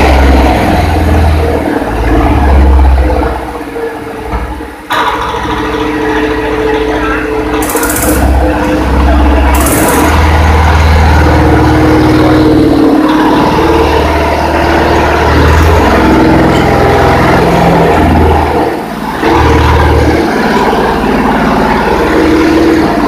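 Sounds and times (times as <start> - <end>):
diesel engine clattering: 0.0 - 23.0.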